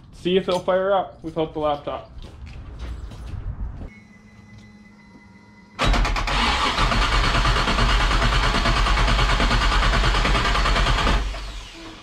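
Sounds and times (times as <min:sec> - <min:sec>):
car engine starting and running: 0:05.7 - 0:12.0.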